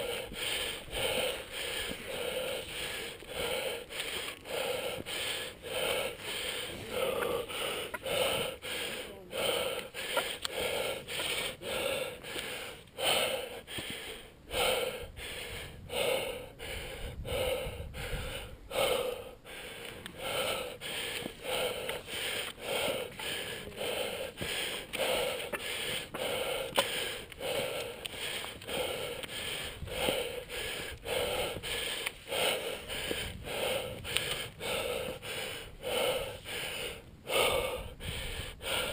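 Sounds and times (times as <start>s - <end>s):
person breathing heavily: 0.0s - 38.9s.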